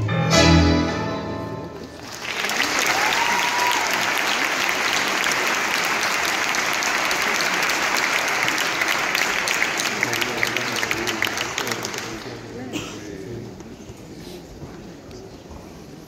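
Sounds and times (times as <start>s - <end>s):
audience applauding: 1.8s - 12.6s.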